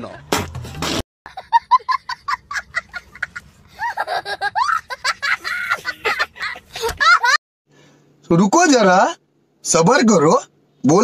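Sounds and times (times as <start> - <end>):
young boy laughing: 1.3 - 7.4.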